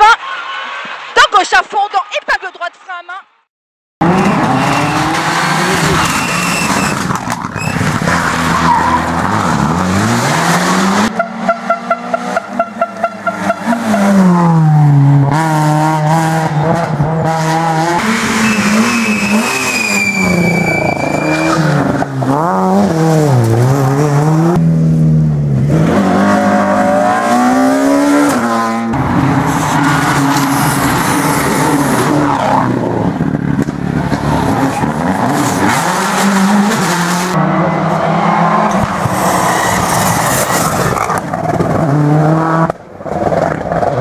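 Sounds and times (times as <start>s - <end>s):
rally car engines revving: 4.0s - 44.0s
high squeal: 5.8s - 7.0s, 7.6s - 7.9s, 18.4s - 21.6s.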